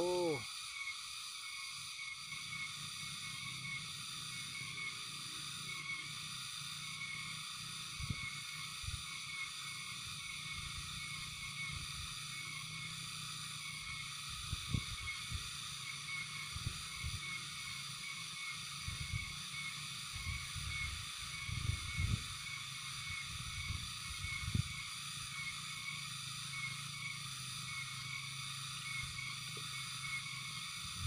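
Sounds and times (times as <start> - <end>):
faint pulsing high tone: 0.0 - 0.4
steady hiss: 0.0 - 31.0.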